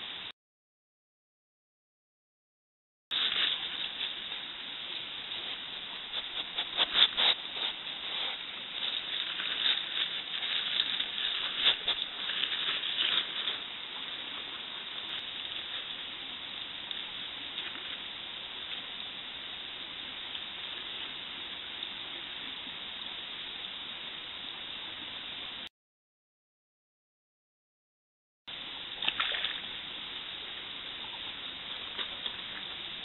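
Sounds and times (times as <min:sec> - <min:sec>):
microphone hiss: 0:03.1 - 0:25.7, 0:28.5 - 0:33.0
fur rubbing against microphone: 0:05.4 - 0:13.6.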